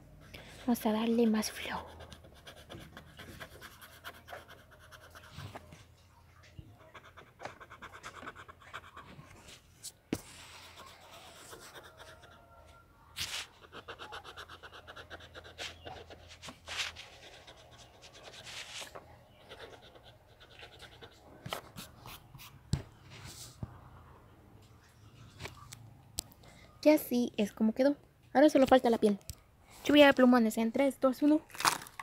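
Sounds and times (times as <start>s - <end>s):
pencil strokes scratching paper: 0.4s - 5.8s, 6.8s - 12.4s, 13.2s - 23.6s.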